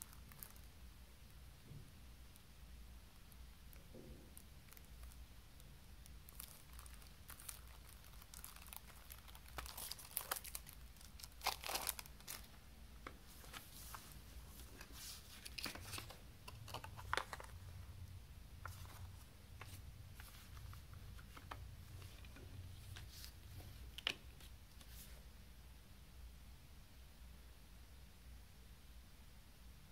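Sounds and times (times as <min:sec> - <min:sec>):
cellophane crinkling and tearing: 0:00.0 - 0:00.7, 0:04.4 - 0:05.2, 0:06.0 - 0:12.6, 0:14.6 - 0:17.7.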